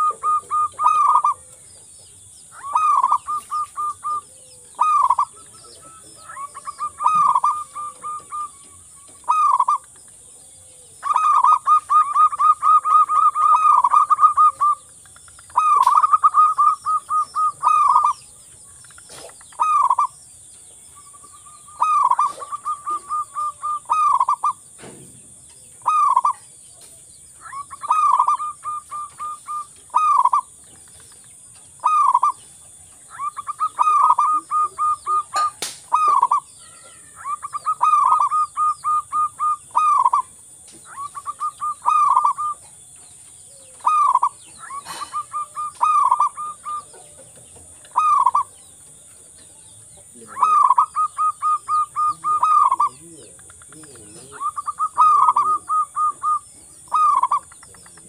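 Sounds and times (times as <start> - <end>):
dove cooing: 0.0 - 1.8, 2.5 - 18.4, 19.0 - 20.2, 21.0 - 24.9, 25.6 - 31.0, 31.6 - 58.0.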